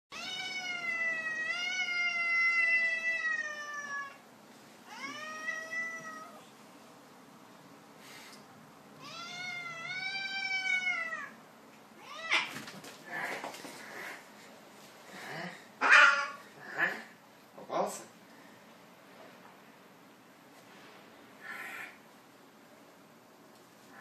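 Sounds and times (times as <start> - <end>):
cat yowling: 0.1 - 4.2, 4.9 - 6.4, 9.0 - 11.4, 12.0 - 12.6, 15.8 - 17.0.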